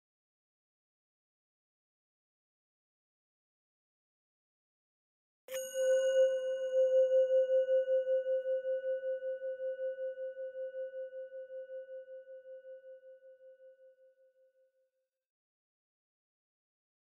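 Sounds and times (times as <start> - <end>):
singing bowl ringing: 5.5 - 12.4.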